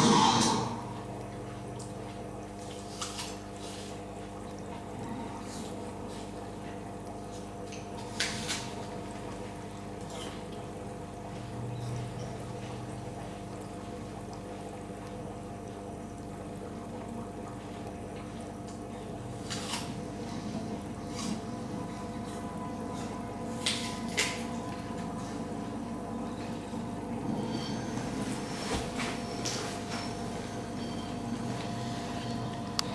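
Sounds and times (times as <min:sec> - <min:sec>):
aquarium equipment humming: 0:00.0 - 0:32.9
water trickling: 0:00.8 - 0:19.4.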